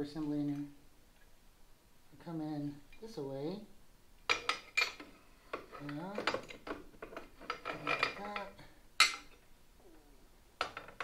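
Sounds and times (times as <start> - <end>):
metal parts clinking and knocking: 4.3 - 9.4, 10.6 - 11.0.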